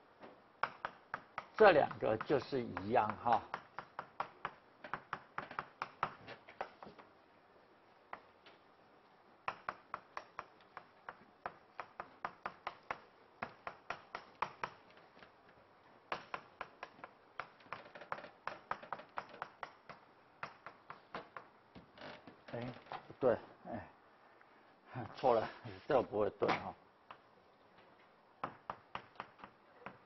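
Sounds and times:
chalk tapping on blackboard: 0.6 - 7.0, 9.5 - 15.0, 16.1 - 21.5, 28.4 - 30.0.

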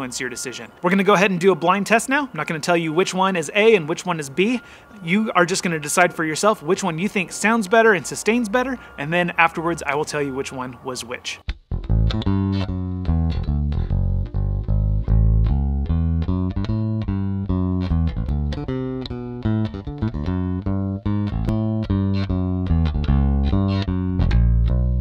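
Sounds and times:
plucked bass guitar line: 11.4 - 25.0.

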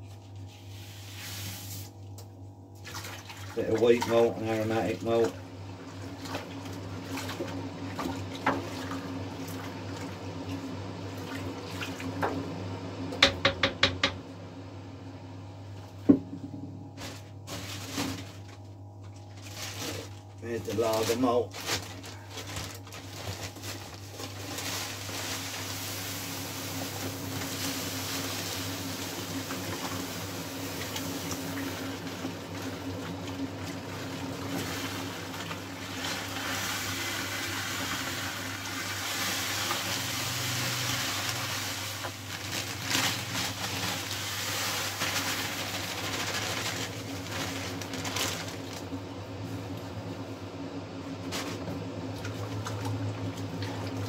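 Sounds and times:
grain and water stirred by hand: 0.0 - 12.4, 16.9 - 49.6, 52.0 - 54.0
steady low hum: 14.0 - 39.1
plastic bag rustling: 16.9 - 49.0
grain poured into water: 24.1 - 32.4, 33.9 - 48.1.

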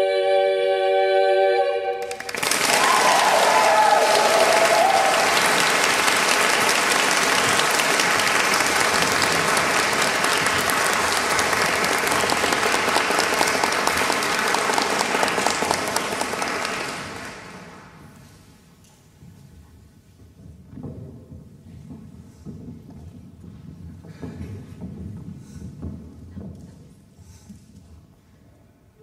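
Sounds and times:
audience applauding: 2.0 - 18.1.

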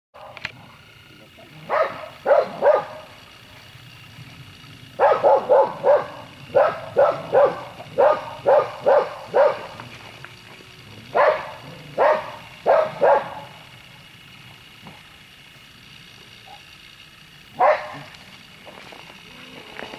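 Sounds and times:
dog barking: 1.7 - 3.1, 5.0 - 9.8, 11.1 - 13.6, 17.6 - 18.1.

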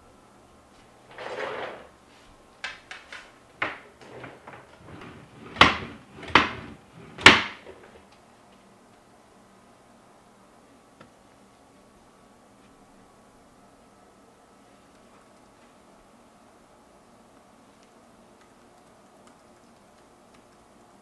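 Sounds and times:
chair scraping: 1.0 - 8.0
sharp wooden knocks: 5.4 - 7.8.

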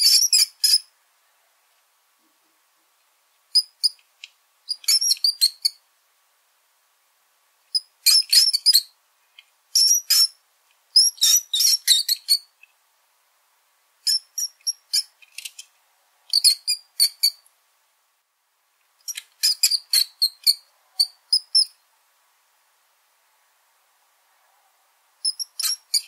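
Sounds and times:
small rodent squeaking: 0.0 - 0.9, 3.5 - 5.8, 7.7 - 9.0, 9.7 - 10.4, 11.0 - 12.6, 14.0 - 15.7, 16.3 - 17.4, 19.0 - 21.8, 25.2 - 26.0.

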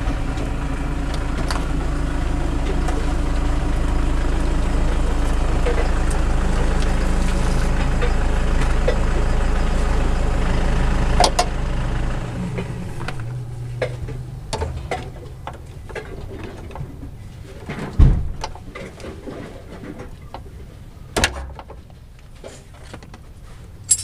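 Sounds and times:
low motor hum: 0.0 - 22.3.

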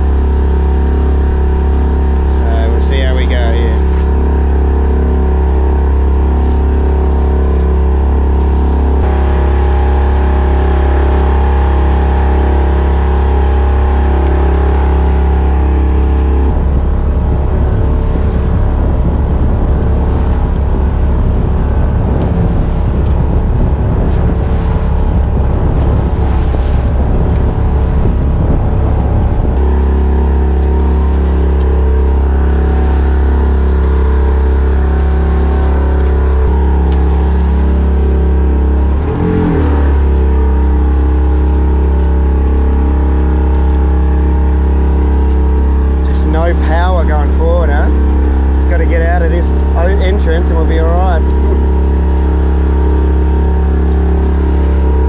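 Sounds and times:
wind rushing: 0.0 - 40.6
boat engine droning: 0.0 - 55.0
water splashing along hull: 0.0 - 55.0.

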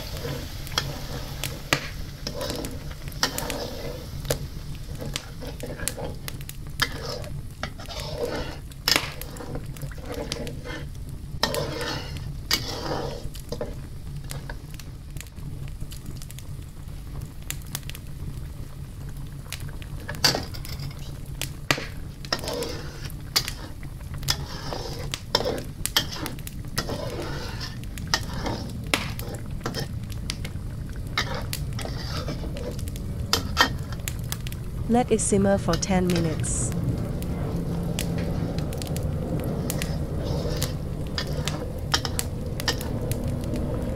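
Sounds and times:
utensil scraping a wok: 0.0 - 14.7, 20.0 - 34.6, 37.4 - 43.9
low hum: 28.0 - 43.9.

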